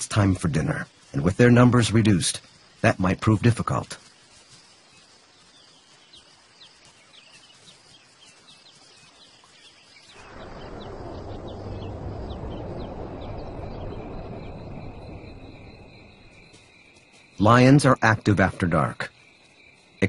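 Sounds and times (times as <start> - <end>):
high insect trill: 0.0 - 20.0.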